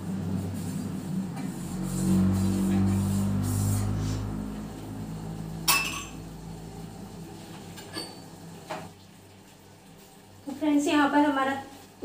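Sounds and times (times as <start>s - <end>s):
steel kitchenware clinking: 5.6s - 6.2s, 7.8s - 8.3s.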